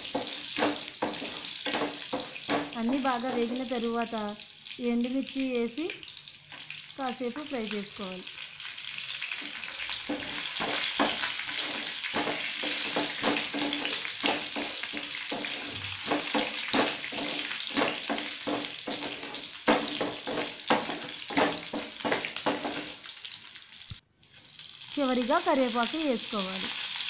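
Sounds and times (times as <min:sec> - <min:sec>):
wooden spatula stirring: 0:00.0 - 0:03.7, 0:09.4 - 0:23.0
spices sizzling in hot oil: 0:00.0 - 0:27.0.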